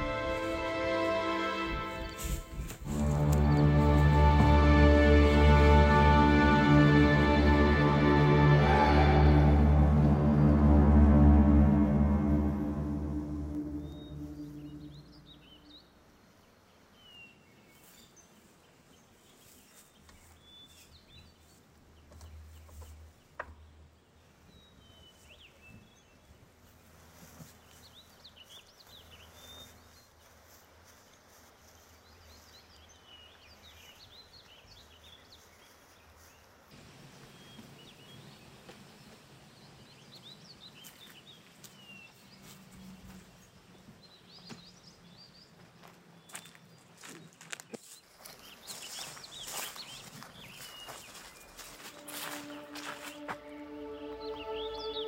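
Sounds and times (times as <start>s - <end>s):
low steady rumble: 7.4s - 15.4s
small birds chirping: 13.6s - 26.4s, 27.2s - 55.0s.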